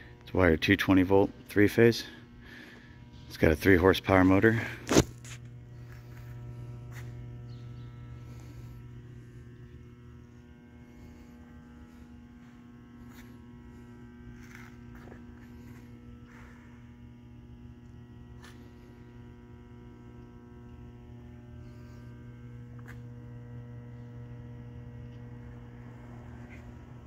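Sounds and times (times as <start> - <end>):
electrical mains hum: 0.0 - 27.0.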